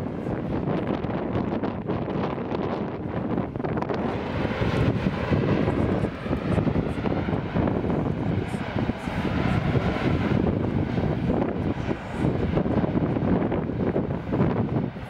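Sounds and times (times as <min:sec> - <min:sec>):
lava fountain rushing gas: 0:00.6 - 0:06.3.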